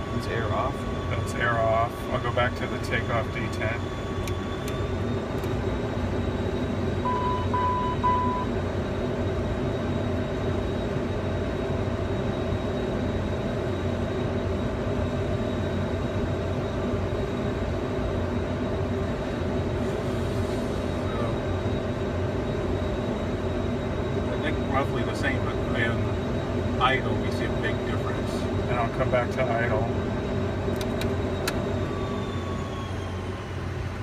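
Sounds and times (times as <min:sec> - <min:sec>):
jet engines droning: 0:00.0 - 0:34.0
short beeps: 0:07.0 - 0:08.6.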